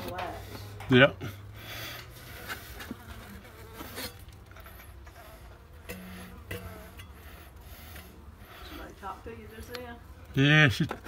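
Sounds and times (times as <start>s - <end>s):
honey bees buzzing: 0.0s - 11.0s
bee buzzing close by: 2.2s - 10.2s
light scrapes and knocks: 2.3s - 7.2s.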